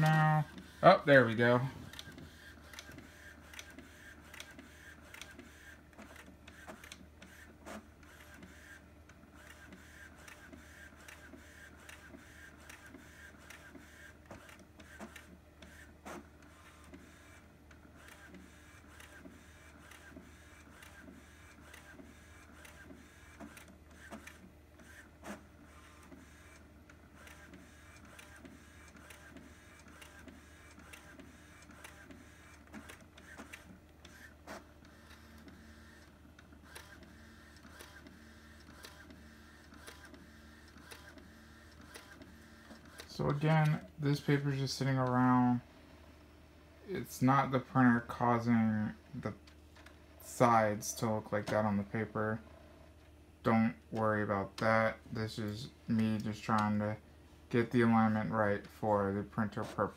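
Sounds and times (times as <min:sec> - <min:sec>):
inkjet printer whirring: 0:00.0 - 0:57.0, 0:57.6 - 0:59.9
printer clicks and ticks: 0:01.9 - 0:15.8, 0:16.4 - 0:43.9.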